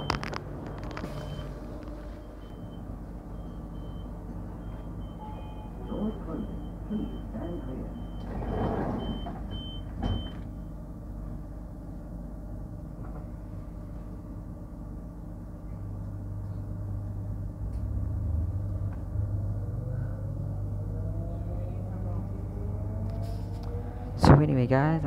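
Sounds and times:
door warning beeps: 0:00.0 - 0:01.6, 0:02.2 - 0:10.5
low motor whine: 0:00.0 - 0:25.0
train carriage hum: 0:00.0 - 0:25.0
sliding doors shutting: 0:08.1 - 0:10.5.

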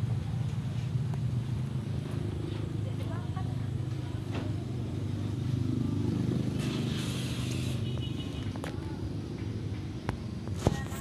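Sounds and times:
engine rumbling low: 0:00.0 - 0:11.0.

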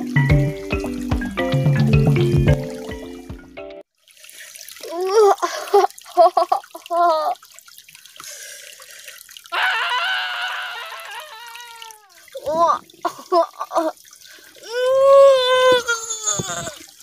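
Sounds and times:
stream trickling: 0:00.0 - 0:17.0
boy straining and grunting: 0:04.8 - 0:06.0, 0:09.6 - 0:14.0, 0:14.6 - 0:16.9.

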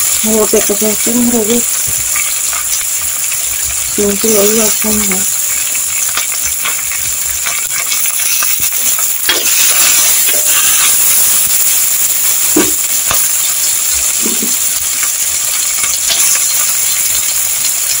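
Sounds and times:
vegetables sizzling in oil: 0:00.0 - 0:18.0
utensil stirring clicks: 0:01.6 - 0:11.9.

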